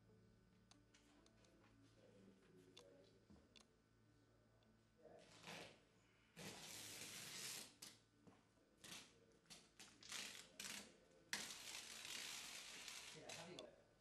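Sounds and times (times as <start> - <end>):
adhesive tape pulled off roll: 6.4 - 8.0, 10.0 - 13.5.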